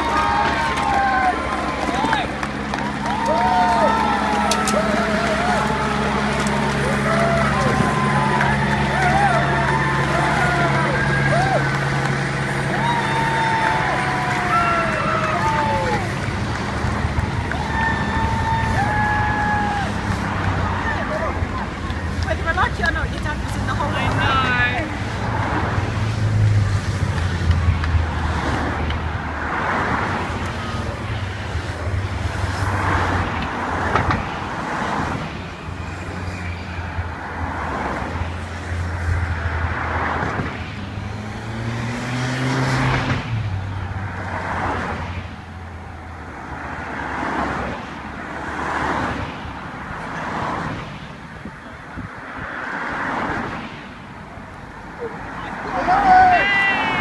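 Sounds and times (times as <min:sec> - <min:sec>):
rushing noise: 0:00.0 - 0:57.0
vehicle engines humming: 0:00.0 - 0:57.0.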